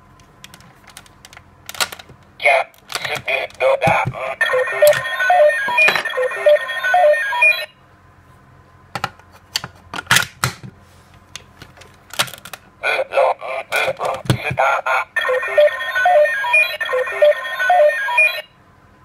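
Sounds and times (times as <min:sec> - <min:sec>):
toy beeping electronic tune: 0:04.4 - 0:07.7, 0:15.2 - 0:18.5.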